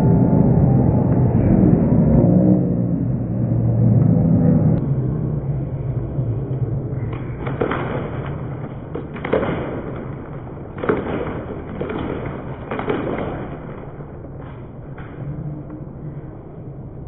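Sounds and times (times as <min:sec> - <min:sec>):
crowd din: 0:04.8 - 0:17.0.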